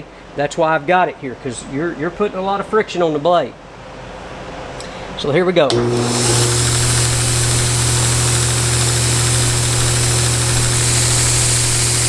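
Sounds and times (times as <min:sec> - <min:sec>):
belt grinder motor humming: 0:05.7 - 0:12.0
sanding belt hissing: 0:06.0 - 0:12.0
steel ground on sanding belt: 0:06.0 - 0:12.0.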